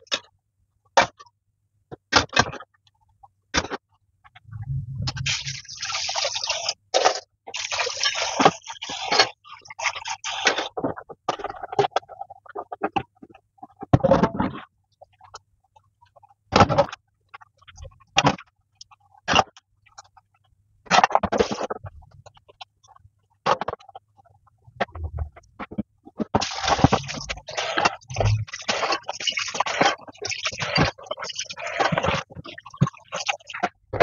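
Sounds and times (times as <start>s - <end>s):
splashing water and scrubbing: 4.5s - 11.0s, 24.8s - 34.0s.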